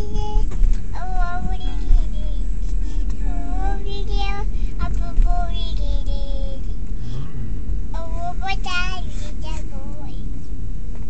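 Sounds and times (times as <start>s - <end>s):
little girl singing: 0.0s - 2.5s, 3.2s - 6.8s, 7.9s - 10.3s
low rumble inside a car: 0.0s - 11.0s.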